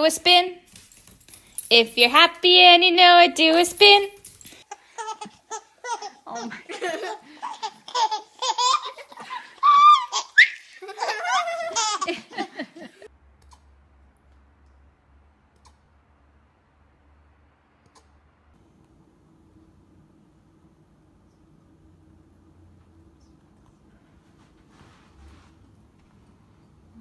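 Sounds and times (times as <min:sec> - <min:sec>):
baby laughing and squealing: 0:04.7 - 0:13.1
people laughing: 0:06.3 - 0:07.8, 0:08.9 - 0:10.0, 0:10.6 - 0:13.1
faint low hum: 0:10.8 - 0:27.0.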